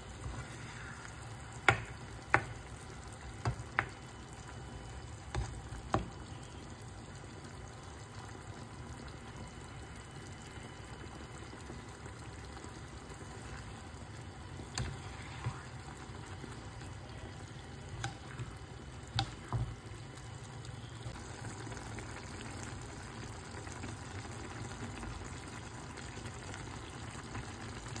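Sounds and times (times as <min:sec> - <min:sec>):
food sizzling in a frying pan: 0:00.0 - 0:28.0
spatula knocking against pan: 0:01.6 - 0:02.6.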